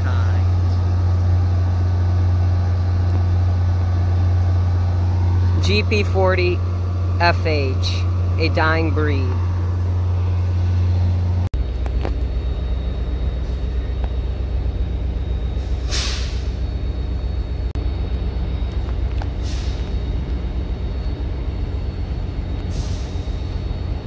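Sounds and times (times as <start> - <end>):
diesel locomotive idling: 0.0 - 24.0
compressed air hissing: 15.7 - 16.5.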